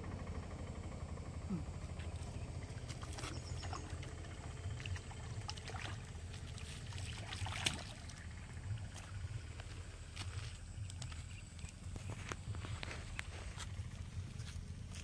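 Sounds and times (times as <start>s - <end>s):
steady low rumble: 0.0s - 15.0s
fish splashing in water: 2.7s - 9.4s.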